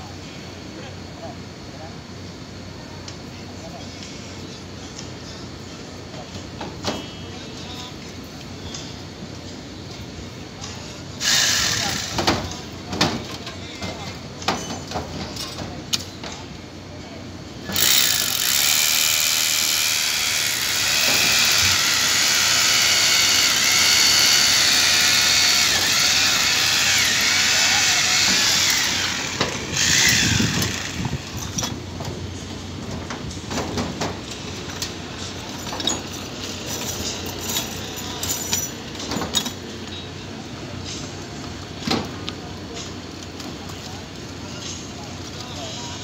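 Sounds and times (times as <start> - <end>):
electric drill running: 11.2 - 12.1, 17.8 - 31.4.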